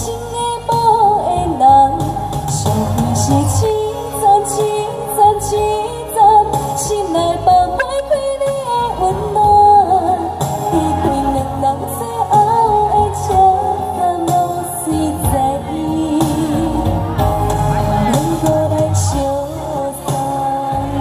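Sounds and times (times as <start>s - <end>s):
recorded backing track: 0.0s - 21.0s
woman singing into a microphone: 0.0s - 21.0s.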